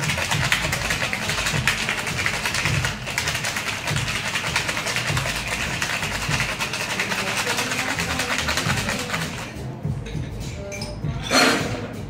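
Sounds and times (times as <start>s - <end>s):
ice rattling in cocktail shaker: 0.0s - 9.6s.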